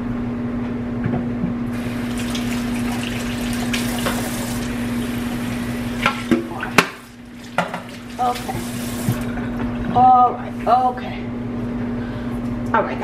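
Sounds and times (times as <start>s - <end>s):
faucet running into steel sink: 1.8s - 9.4s
hands washing under water: 1.8s - 9.9s.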